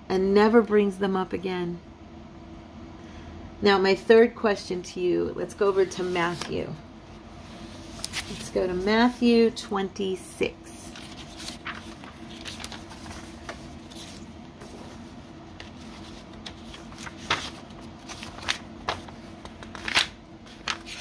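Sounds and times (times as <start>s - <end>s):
book pages rustling and flicking: 5.8s - 6.6s, 7.4s - 9.3s, 10.8s - 21.0s.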